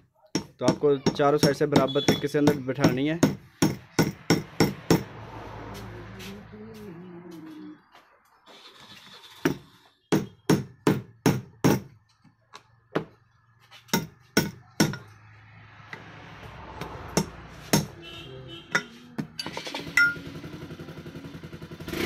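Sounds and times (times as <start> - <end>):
sharp metal knocks: 0.4 - 5.1, 9.4 - 12.0, 13.9 - 15.2, 16.8 - 18.0.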